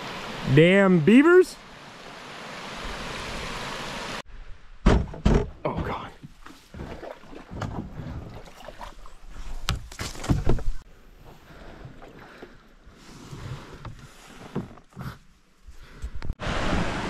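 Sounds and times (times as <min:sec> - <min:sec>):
water washing: 0:05.7 - 0:10.8
paddle strokes splashing: 0:06.3 - 0:15.0.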